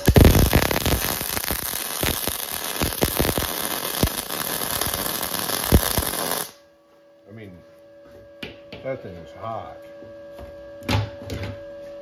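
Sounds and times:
welding arc crackling hiss: 0.0s - 6.6s.

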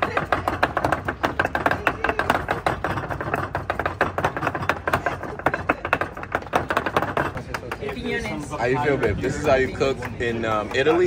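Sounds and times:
pestle pounding in mortar: 0.0s - 8.4s.

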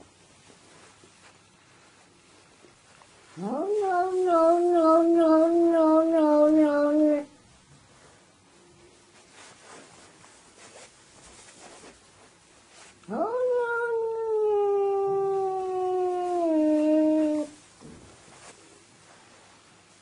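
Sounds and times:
cat yowling: 3.4s - 7.3s, 13.1s - 17.6s.

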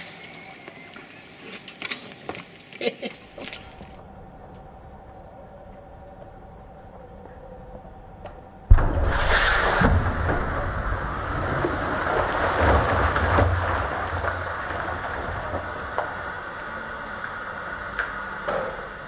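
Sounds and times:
water splashing down: 8.7s - 19.0s.

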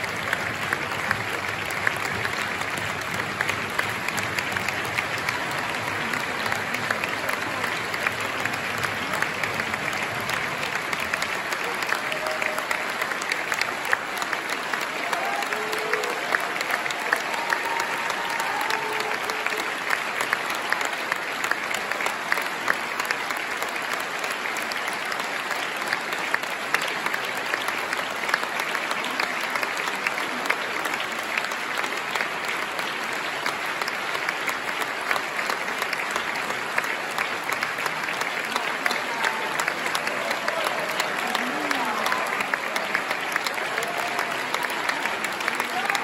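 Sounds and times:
audience applauding: 0.0s - 46.0s.

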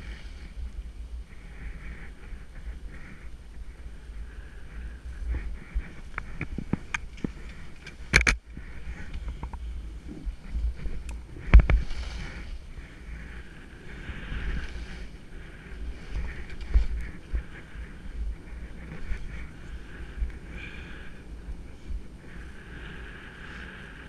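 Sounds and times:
skis hissing through snow: 0.0s - 0.7s, 9.8s - 21.0s
wind buffeting microphone: 0.0s - 24.0s
sharp clicks and knocks: 6.1s - 8.4s.

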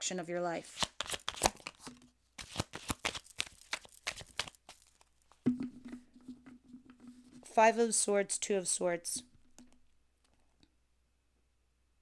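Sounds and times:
cards being shuffled: 0.6s - 5.1s.

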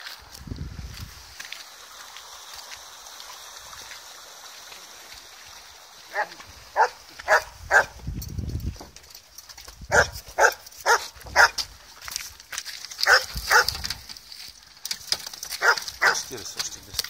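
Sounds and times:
small dog barking: 6.1s - 8.0s, 9.9s - 11.6s, 13.0s - 13.8s, 15.6s - 16.2s.

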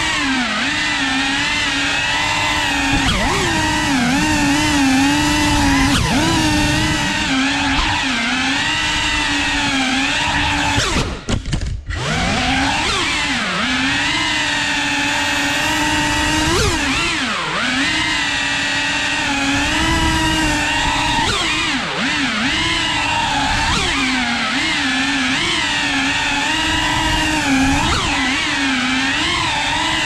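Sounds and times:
drone motors whining: 0.0s - 30.0s.

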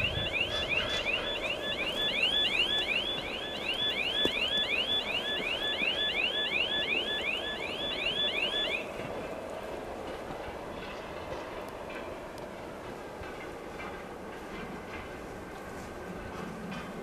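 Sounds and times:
level-crossing warning chirp: 0.0s - 9.1s
freight wagons rumbling: 0.0s - 17.0s.

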